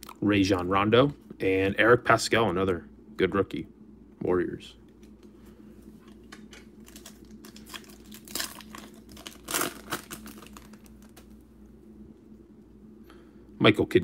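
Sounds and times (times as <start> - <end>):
foil wrapper crinkling: 6.0 - 11.4.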